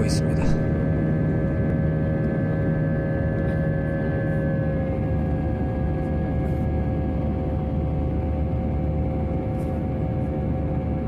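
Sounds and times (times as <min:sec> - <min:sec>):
jet engines humming: 0:00.0 - 0:09.4
airliner cabin roar: 0:00.0 - 0:11.0.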